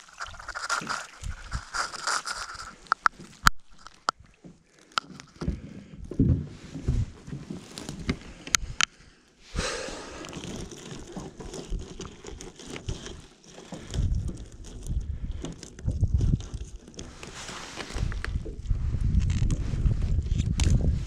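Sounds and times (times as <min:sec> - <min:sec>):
wet net rustling and scraping: 0:00.0 - 0:05.4, 0:06.6 - 0:08.4, 0:09.9 - 0:21.0.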